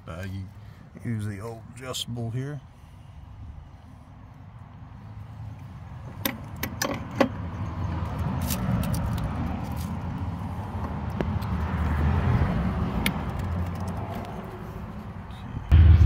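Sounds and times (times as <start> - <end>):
low rumble: 15.7 - 16.0.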